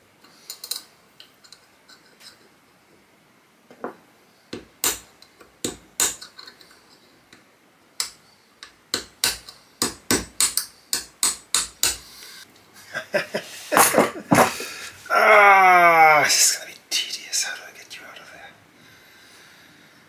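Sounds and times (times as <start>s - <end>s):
hammer tapping metal punch: 8.9s - 12.0s.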